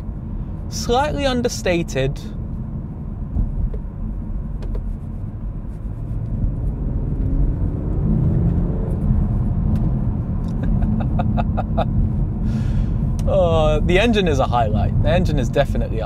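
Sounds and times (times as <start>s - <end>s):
road rumble: 0.0s - 16.0s
car engine accelerating: 6.0s - 14.1s.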